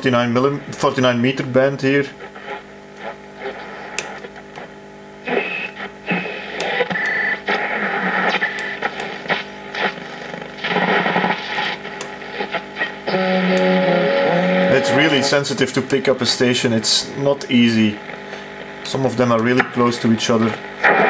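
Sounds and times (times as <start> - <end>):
radio static: 0.0 - 21.0
snatches of radio stations: 1.8 - 15.7, 18.0 - 21.0
radio whistles: 5.2 - 15.3.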